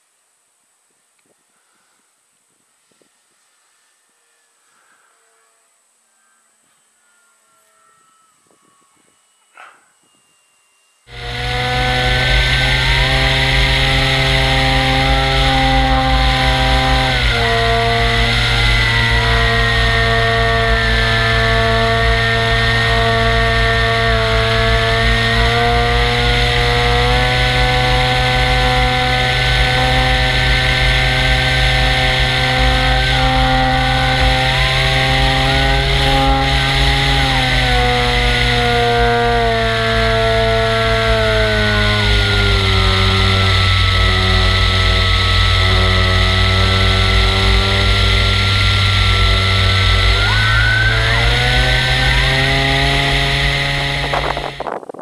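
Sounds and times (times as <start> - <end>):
model airplane engine running: 11.1 - 55.0.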